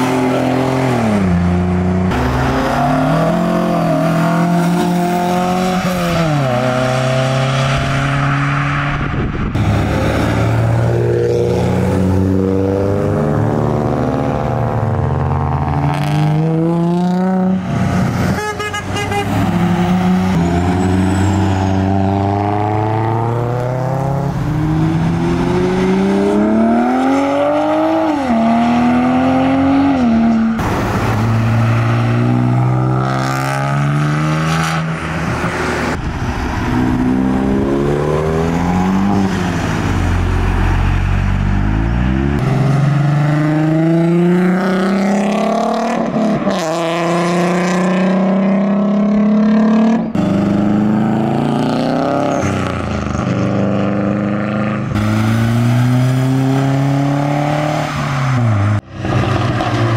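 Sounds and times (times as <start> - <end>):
cars accelerating: 0.0 - 59.9.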